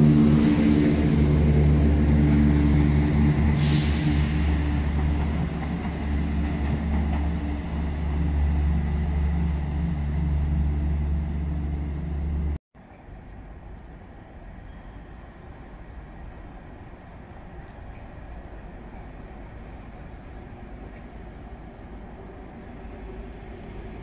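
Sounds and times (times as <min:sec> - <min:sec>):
train engine droning: 0:00.0 - 0:24.0
faint station background: 0:04.2 - 0:24.0.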